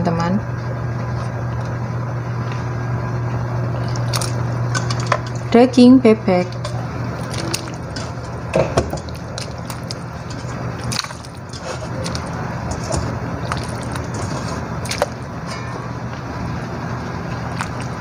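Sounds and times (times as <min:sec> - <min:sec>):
steady low hum: 0:00.0 - 0:18.0
meat splashing into water: 0:03.8 - 0:05.2, 0:07.2 - 0:12.4, 0:13.3 - 0:15.3.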